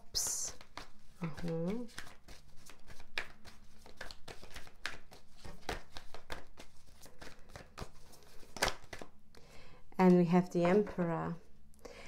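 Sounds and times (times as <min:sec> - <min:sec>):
cards snapping and flicking: 0:00.6 - 0:09.1.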